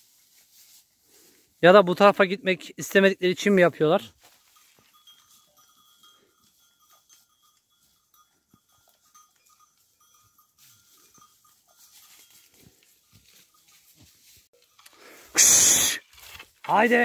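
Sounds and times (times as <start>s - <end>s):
small rustles and ticks: 0.0s - 1.6s, 4.1s - 15.1s.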